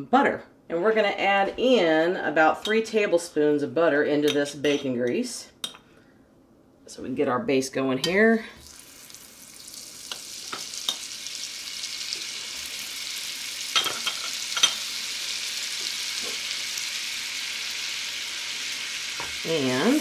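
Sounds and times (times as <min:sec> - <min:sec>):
butter sizzling in grease: 0:08.6 - 0:20.0.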